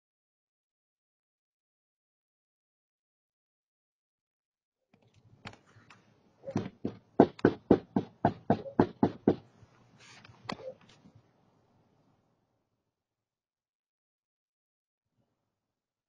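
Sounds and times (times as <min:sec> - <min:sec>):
sharp knocks: 0:06.5 - 0:09.4.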